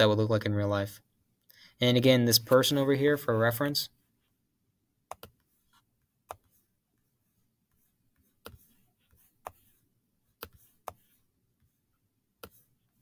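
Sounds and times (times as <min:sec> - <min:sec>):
computer mouse clicking: 0:05.1 - 0:05.5.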